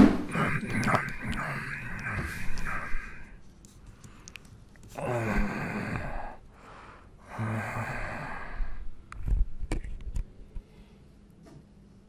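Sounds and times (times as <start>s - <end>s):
man sighing breathily: 4.9s - 8.8s.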